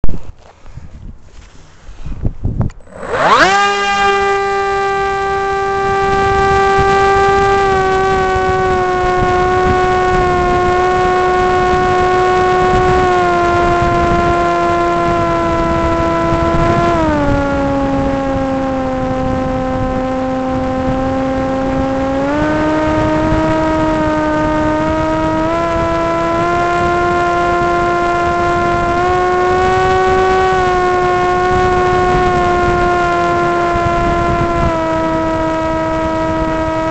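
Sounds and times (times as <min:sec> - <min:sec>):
quadcopter motors whining: 0:01.4 - 0:36.9.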